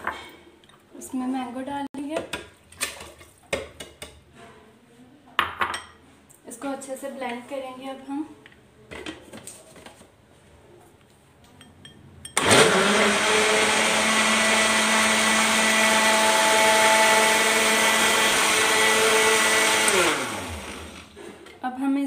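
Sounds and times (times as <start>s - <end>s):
electric blender running: 12.4s - 21.2s.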